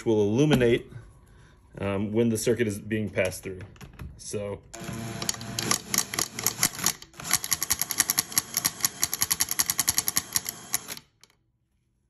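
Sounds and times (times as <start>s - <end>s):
cordless drill spinning: 4.8s - 11.1s.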